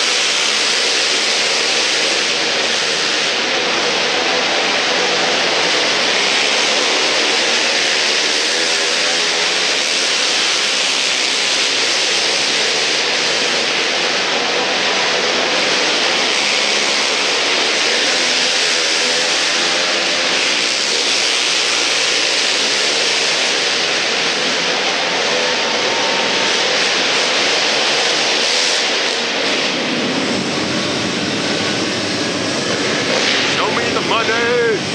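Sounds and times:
quad engines droning: 0.0 - 34.9.

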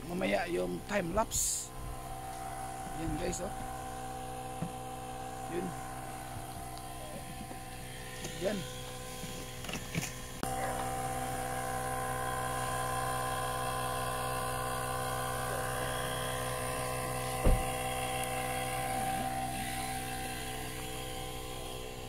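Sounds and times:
electric air pump whining: 0.0 - 22.0
sharp thump: 17.4 - 17.7.

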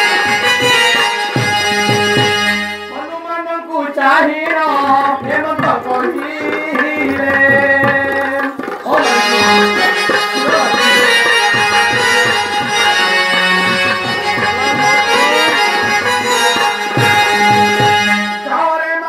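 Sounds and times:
harmonium melody: 0.0 - 19.0
tabla strokes: 4.3 - 18.5.

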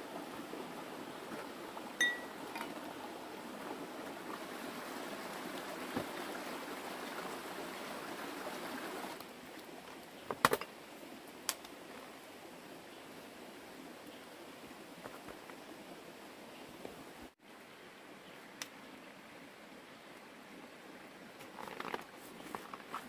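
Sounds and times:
stream running over rocks: 0.0 - 23.0.

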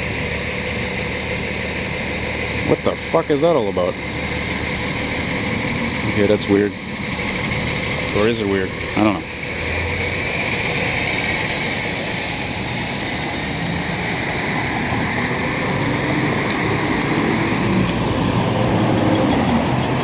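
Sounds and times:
bus pulling away: 0.0 - 20.0
car passing: 3.4 - 20.0.

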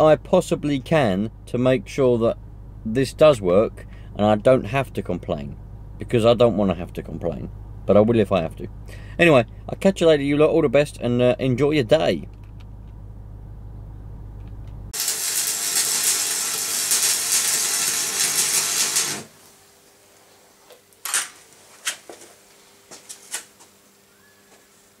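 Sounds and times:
low steady hum: 0.0 - 18.2
arc welder crackling: 14.9 - 22.1.

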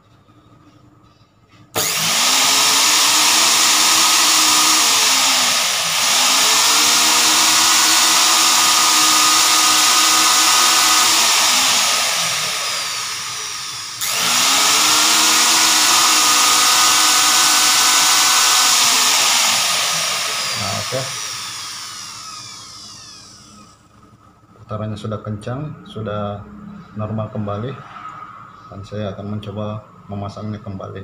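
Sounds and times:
food processor motor whine: 1.8 - 23.9.

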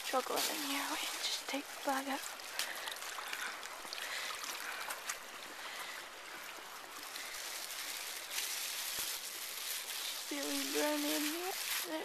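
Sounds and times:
river water trickling: 0.0 - 12.0
wet plastic bag crinkling: 7.1 - 12.0.

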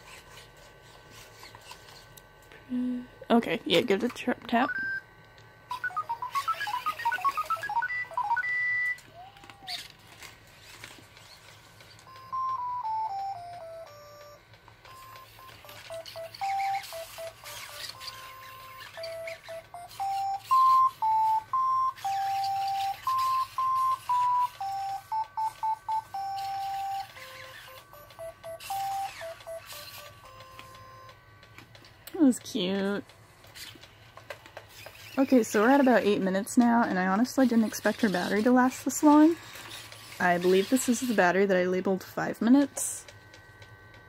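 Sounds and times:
electronic beep melody: 5.7 - 9.0, 12.1 - 31.2
robot motor whirring: 15.5 - 20.9, 28.6 - 30.7, 37.4 - 41.3.

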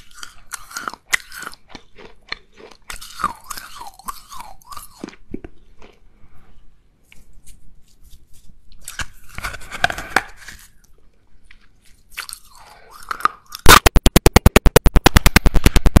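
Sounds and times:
crunching and chewing: 0.0 - 13.9
loud rapid pulsing: 13.7 - 16.0.

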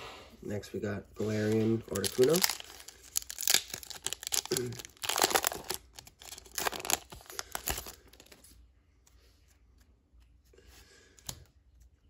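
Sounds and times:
foil wrapper tearing and crinkling: 1.4 - 8.4.

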